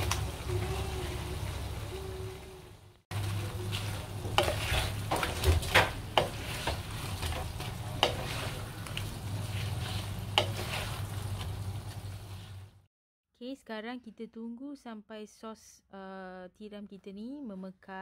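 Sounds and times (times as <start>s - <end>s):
fish sizzling in a wok: 0.0s - 12.9s.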